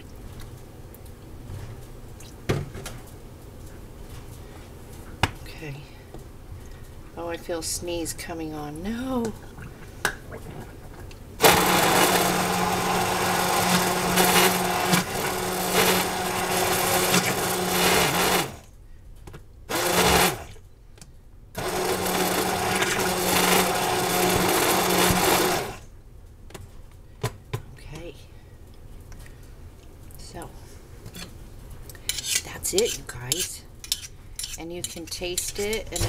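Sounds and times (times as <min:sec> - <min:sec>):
stick blender motor humming: 0:11.4 - 0:18.7, 0:19.7 - 0:20.6, 0:21.6 - 0:25.8.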